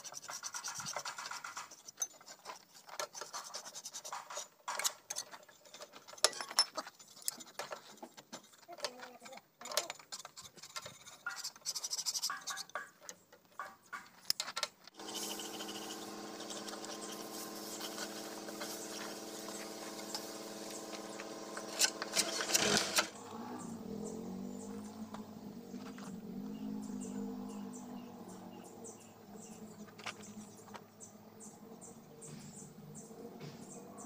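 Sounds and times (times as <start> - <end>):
metal tools scraping on steel: 0.0 - 13.0
steady machine hum: 15.0 - 27.2.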